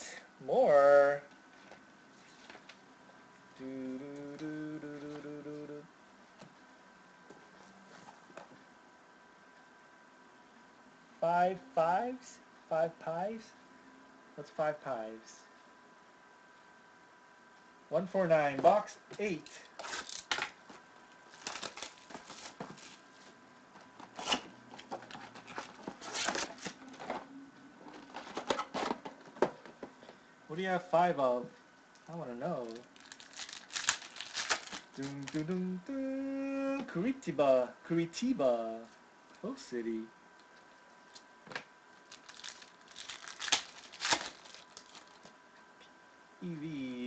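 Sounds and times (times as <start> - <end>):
cardboard and foil packs rustling: 19.6 - 27.3, 27.9 - 29.7, 32.6 - 35.4, 42.1 - 45.3.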